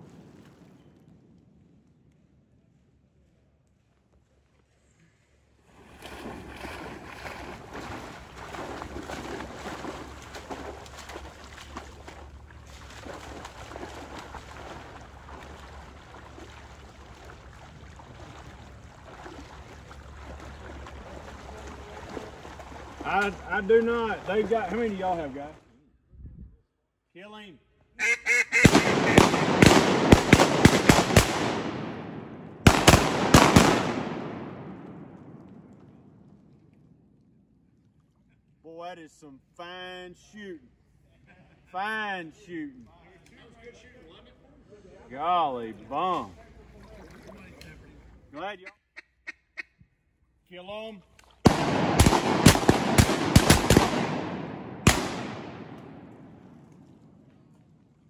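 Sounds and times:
dog splashing through water: 5.8 - 25.6
shotgun shots echoing: 28.6 - 35.8, 51.4 - 56.7.

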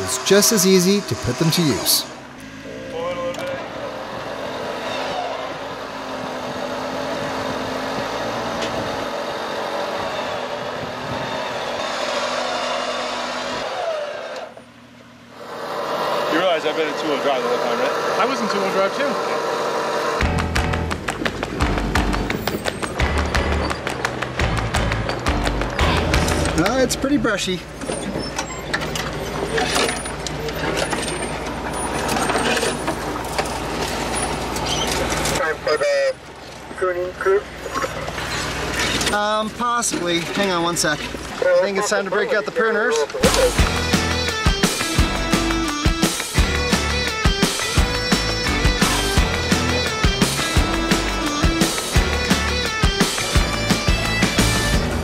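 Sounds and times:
electric winch whirring: 3.9 - 20.5
vehicle engine running: 14.6 - 38.8, 43.2 - 55.0
branches scraping and snapping on car: 28.7 - 35.4.

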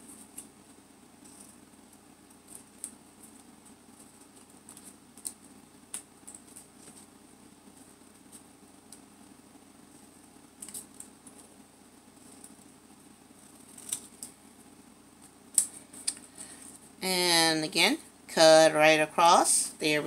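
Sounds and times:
scissors snipping paper: 13.6 - 14.3.

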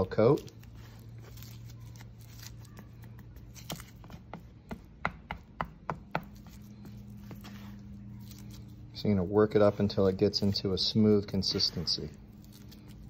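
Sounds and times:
scraper scraping palette board: 6.1 - 8.9, 9.5 - 13.0.

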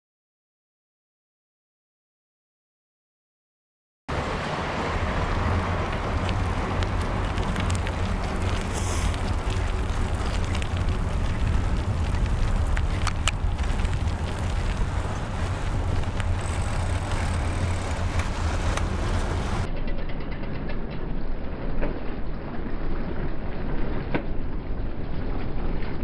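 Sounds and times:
passing car traffic noise: 4.1 - 19.7
wind rush from moving bicycle: 4.1 - 19.7.

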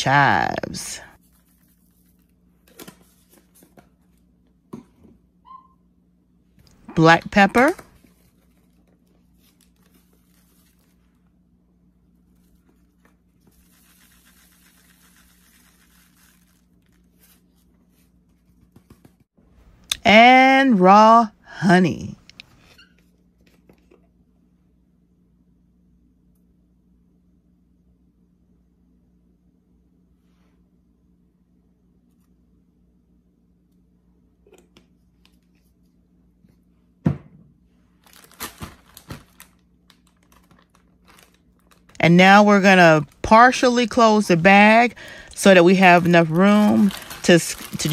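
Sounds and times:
plastic bag rustling: 12.3 - 18.1, 38.0 - 47.9.

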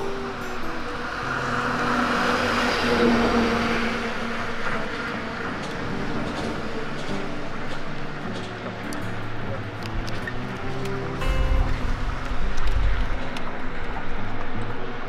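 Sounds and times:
road vehicle passing: 0.0 - 15.0
soft background music: 0.0 - 15.0.

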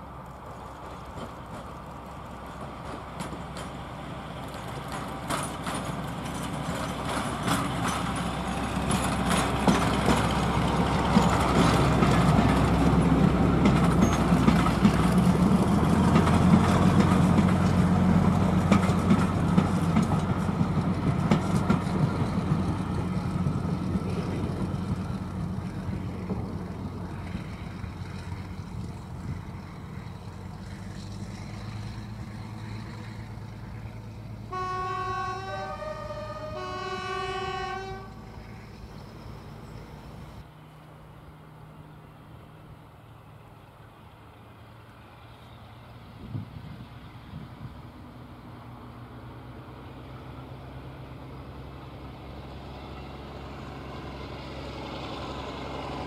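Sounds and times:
wheels clicking over rail joints: 0.0 - 36.6
diesel locomotive engines under load: 0.0 - 56.0.

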